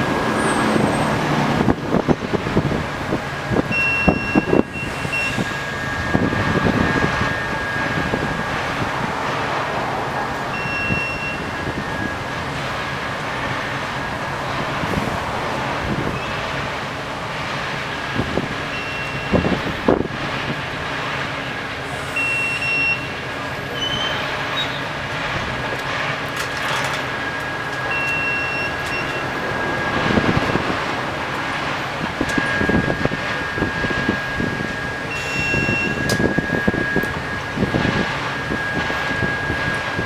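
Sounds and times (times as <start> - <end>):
crane engine running: 0.0 - 40.0
high beeps: 3.7 - 6.2, 10.5 - 12.2, 18.7 - 19.5, 22.1 - 23.1, 27.3 - 30.0, 32.2 - 37.4
steel clanks: 26.2 - 29.3.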